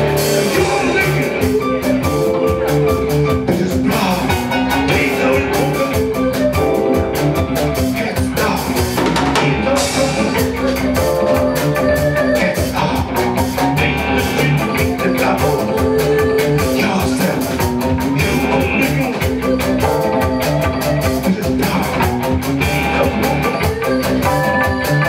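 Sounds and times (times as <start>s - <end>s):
fast drum beat: 0.0s - 25.0s
live band playing: 0.0s - 25.0s
woman singing into a microphone: 15.6s - 16.8s.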